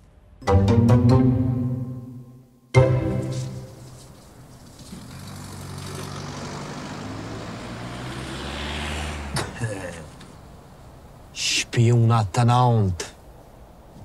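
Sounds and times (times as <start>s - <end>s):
vehicle engine running: 4.0s - 8.4s.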